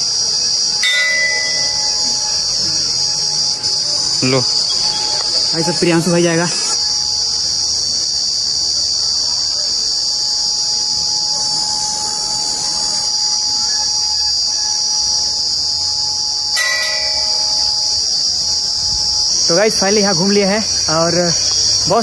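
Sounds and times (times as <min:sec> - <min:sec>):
high shrill of insects: 0:00.0 - 0:22.0
temple bell ringing: 0:00.5 - 0:06.2, 0:10.6 - 0:14.2, 0:14.9 - 0:19.4.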